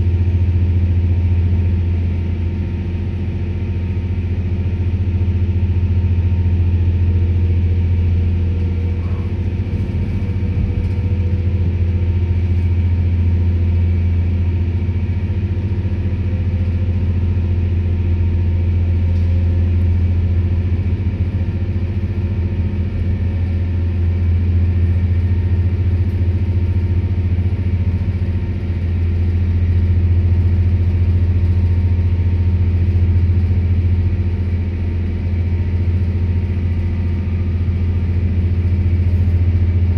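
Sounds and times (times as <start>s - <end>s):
diesel engine low hum: 0.0s - 39.9s.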